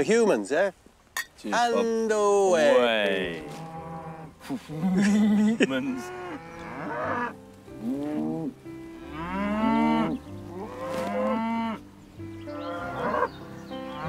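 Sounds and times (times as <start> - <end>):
cattle mooing: 2.7 - 11.9, 12.5 - 14.0.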